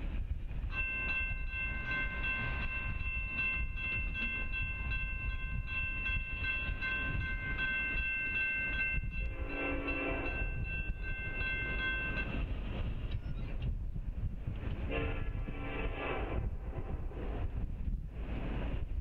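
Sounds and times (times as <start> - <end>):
crossing warning bell ringing: 0.6 - 12.6
train horn: 9.1 - 10.9, 14.8 - 17.2.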